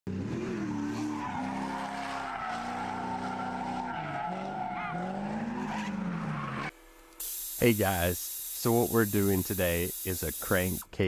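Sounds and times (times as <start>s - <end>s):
tire squeal: 0.6s - 6.7s.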